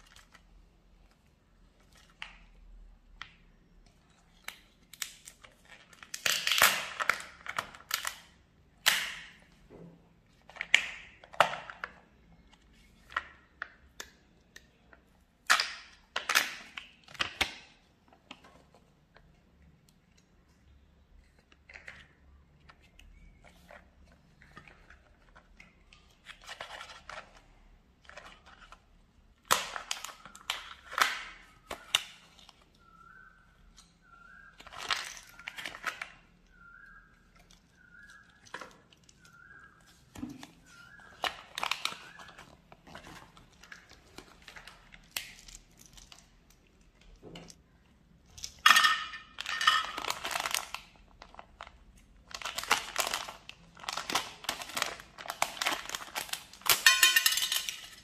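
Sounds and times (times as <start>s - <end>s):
plastic wrapper crinkling: 0.0s - 3.4s, 21.2s - 47.6s, 48.2s - 58.0s.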